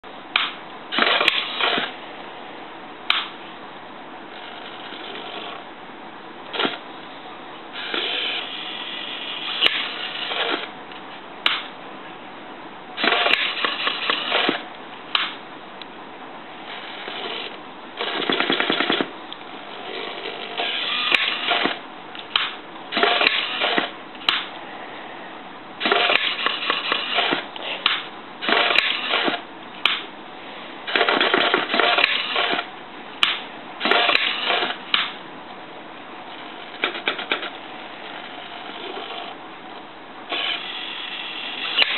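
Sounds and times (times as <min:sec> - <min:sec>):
small electric motor whining: 0:07.8 - 0:10.6, 0:19.9 - 0:21.7, 0:40.3 - 0:41.9.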